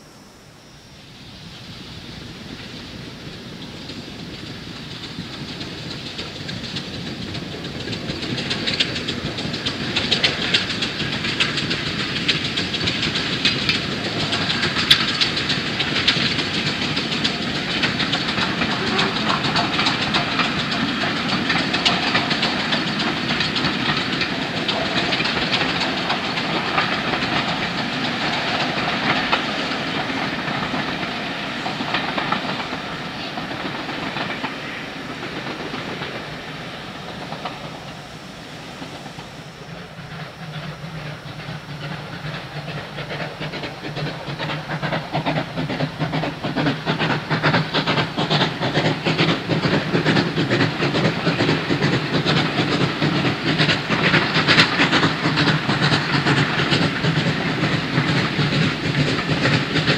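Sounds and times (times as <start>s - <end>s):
steam hiss: 0.0s - 59.9s
wheels clacking over rail joints: 3.8s - 59.9s.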